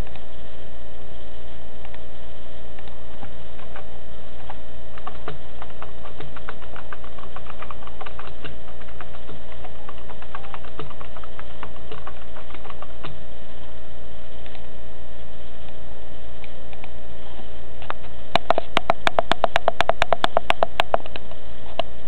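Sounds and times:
steady hum: 0.0s - 22.0s
keyboard typing clicks: 4.4s - 13.2s, 18.4s - 21.2s.

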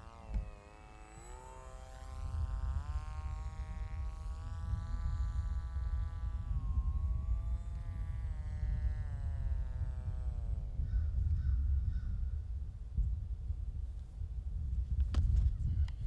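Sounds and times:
electric motor and propeller buzzing: 0.0s - 16.0s.

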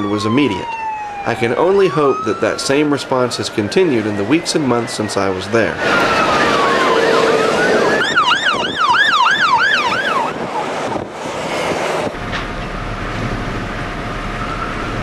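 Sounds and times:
ambulance siren: 0.0s - 11.1s
vehicle rushing past: 0.7s - 12.2s.

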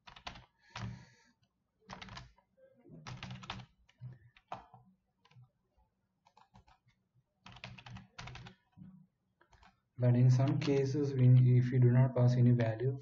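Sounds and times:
computer keyboard typing: 0.0s - 1.2s, 1.9s - 2.4s, 3.0s - 5.4s, 6.2s - 8.8s, 9.4s - 11.4s.

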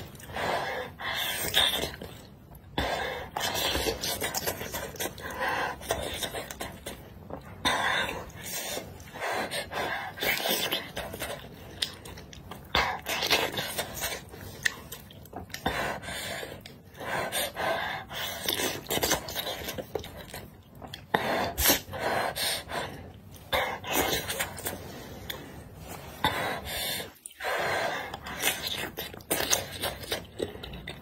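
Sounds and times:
wet chewing: 9.7s - 15.7s.

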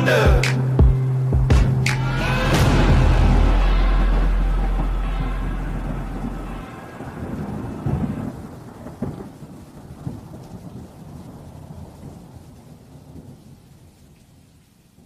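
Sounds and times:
song's last chord: 0.0s - 8.3s
steady rain: 0.0s - 15.0s
thunder rumbling: 0.0s - 15.0s.

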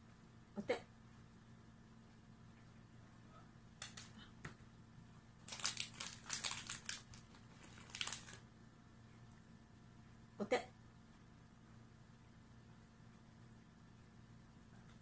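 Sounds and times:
cat crunching a treat: 5.4s - 8.4s.

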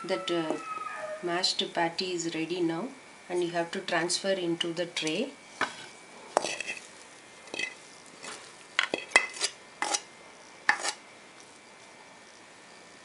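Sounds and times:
metal spatula scraping pan: 5.6s - 6.9s, 7.5s - 10.1s, 10.7s - 11.0s.

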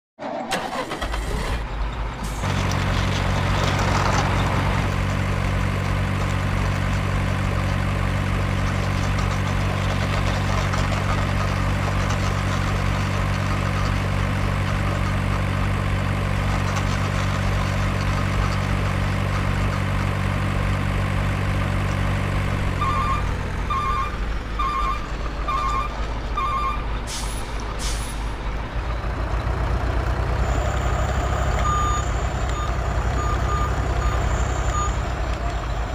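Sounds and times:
diesel truck engine drone: 0.2s - 35.9s
reversing alarm beeps: 22.8s - 26.8s.

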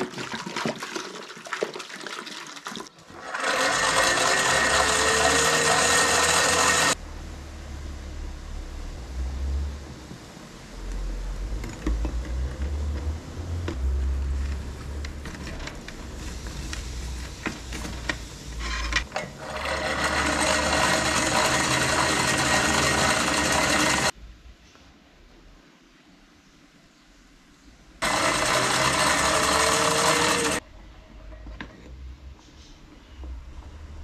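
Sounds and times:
loud bubbling hiss: 16.0s - 18.6s.

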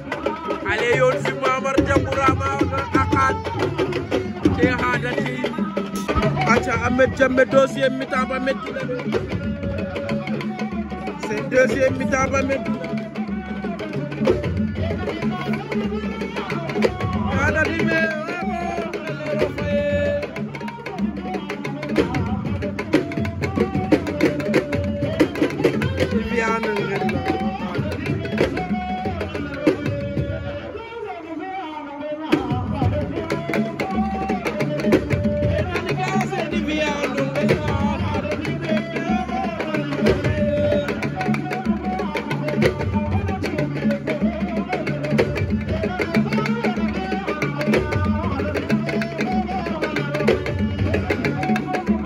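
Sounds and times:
fast drumming: 0.0s - 31.0s, 32.2s - 52.0s
person singing: 0.0s - 52.0s.

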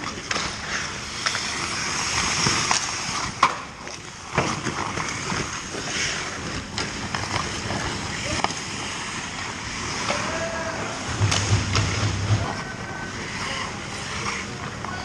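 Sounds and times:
hockey sticks and puck clacking: 0.0s - 15.0s
skate blades scraping ice: 0.0s - 15.0s.

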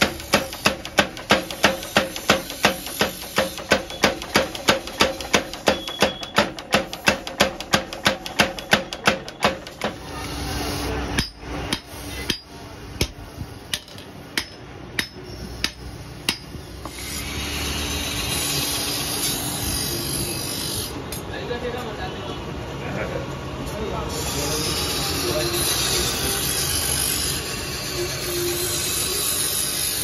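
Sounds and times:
metal knocks: 0.0s - 10.0s
power hammer striking hot metal: 0.0s - 17.2s.

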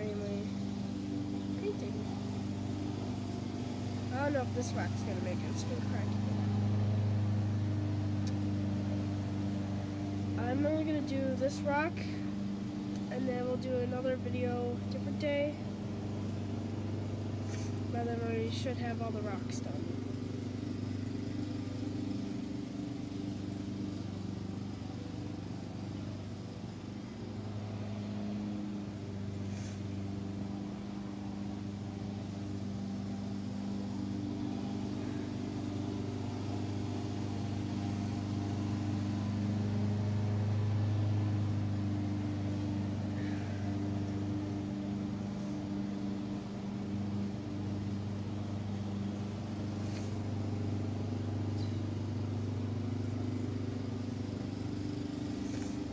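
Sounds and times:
low machine hum: 0.0s - 55.9s.

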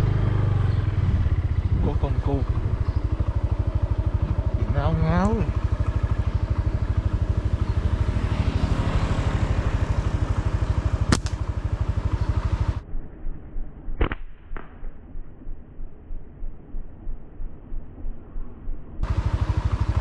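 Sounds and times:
motorcycle engine running: 0.0s - 14.0s, 15.1s - 20.0s
slingshot snaps: 11.1s - 11.4s
sharp click: 13.9s - 15.3s.

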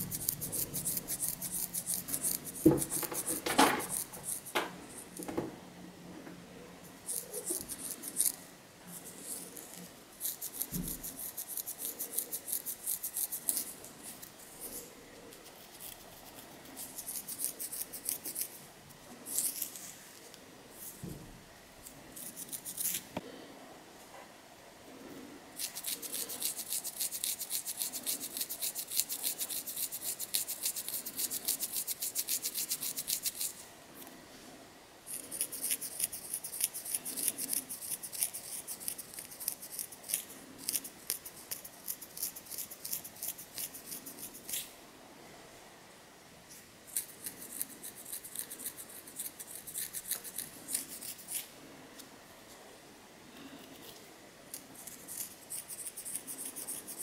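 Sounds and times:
fingernails scratching scalp through hair: 0.0s - 5.2s, 7.0s - 18.6s, 19.3s - 19.9s, 22.1s - 23.1s, 25.6s - 33.6s, 35.1s - 44.7s, 46.9s - 51.5s, 53.8s - 57.0s.

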